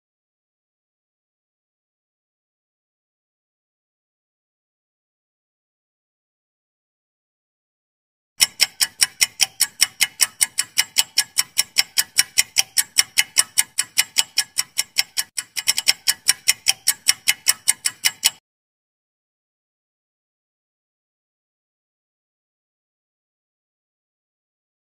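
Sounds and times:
clock ticking fast: 8.4 - 18.4.

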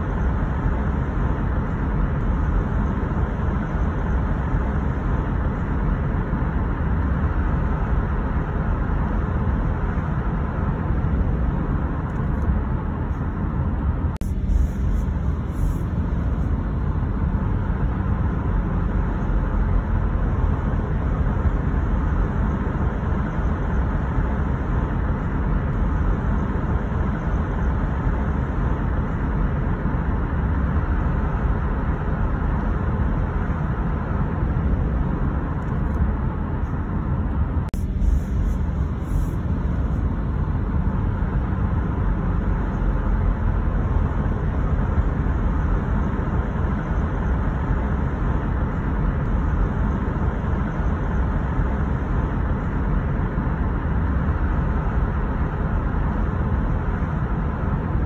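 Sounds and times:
deep road and tyre noise: 0.0 - 58.0.

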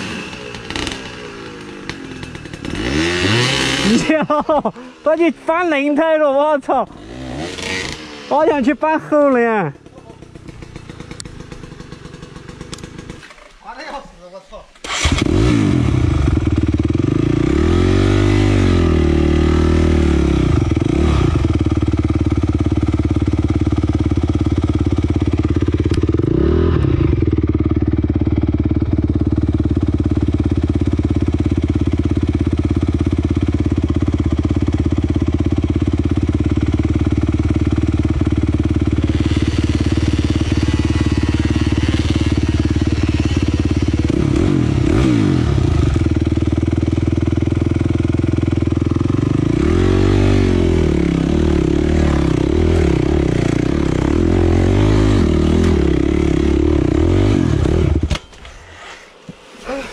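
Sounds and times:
dirt bike engine idling and revving: 0.0 - 13.5, 14.8 - 59.9.

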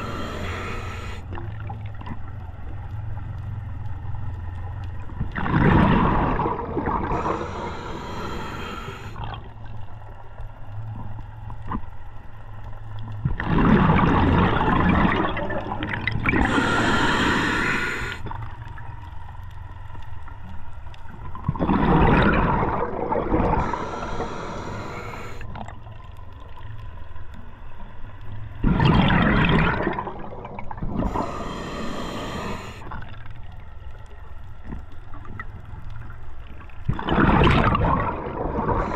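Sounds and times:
regulator hiss on inhale: 0.0 - 1.4, 7.0 - 9.2, 16.4 - 18.4, 23.5 - 25.5, 31.0 - 33.0
bubbling exhaled air: 0.0 - 1.7, 5.4 - 9.5, 13.4 - 18.3, 21.5 - 25.7, 28.6 - 33.1, 36.9 - 38.9.

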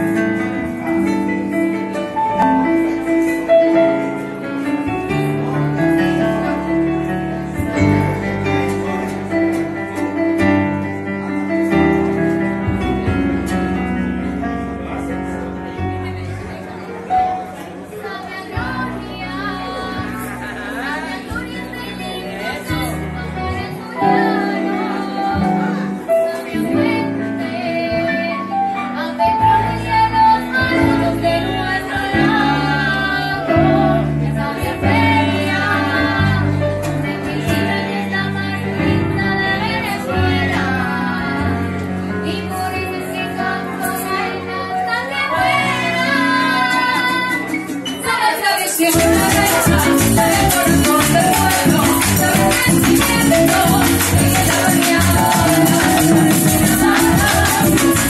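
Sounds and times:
live band playing: 0.0 - 58.0
voices singing together: 17.2 - 58.0
fast rattling percussion: 47.0 - 58.0.

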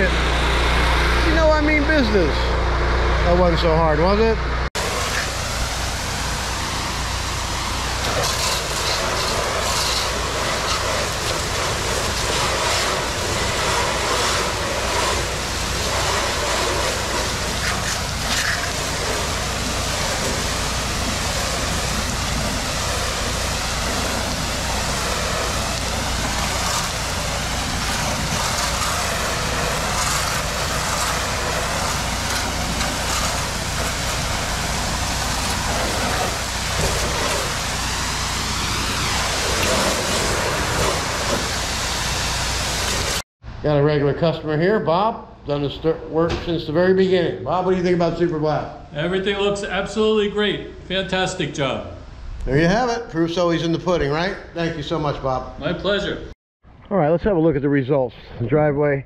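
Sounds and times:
pressure washer spray hissing: 4.8 - 43.2.

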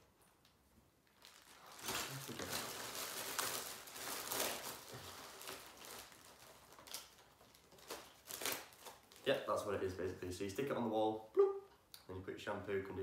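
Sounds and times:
plastic bag crinkling: 0.2 - 9.7.

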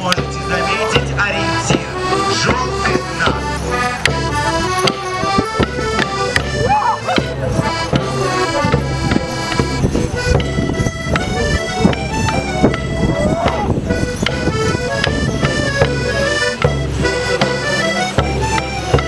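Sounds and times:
accordion dance tune: 0.0 - 19.0
sharp knocks: 13.5 - 17.6.

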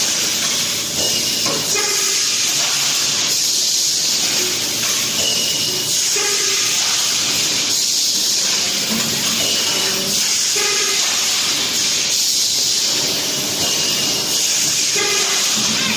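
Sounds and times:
compressed air hissing: 5.8 - 15.9.

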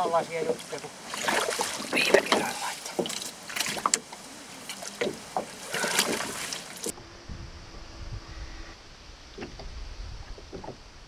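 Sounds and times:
water splashing: 0.0 - 7.0
faint steady hum: 0.0 - 11.0
low wind rumble: 3.3 - 11.0.

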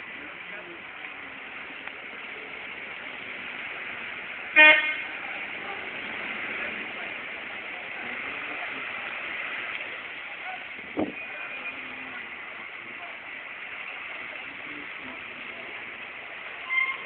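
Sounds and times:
steady outdoor hiss: 0.0 - 17.0
car horn: 4.5 - 5.2, 16.6 - 17.0.

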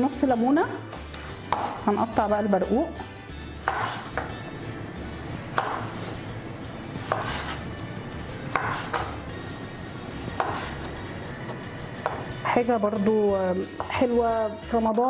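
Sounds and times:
knife strokes on cutting board: 3.6 - 4.2, 7.0 - 7.7, 8.5 - 9.1, 10.4 - 10.9.

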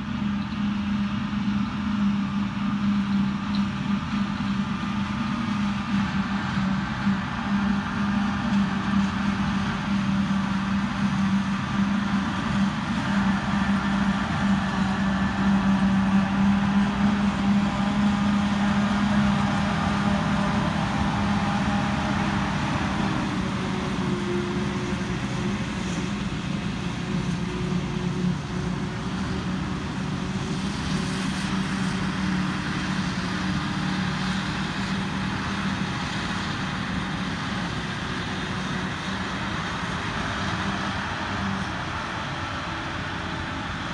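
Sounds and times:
harvesting machinery drone: 0.0 - 43.9.

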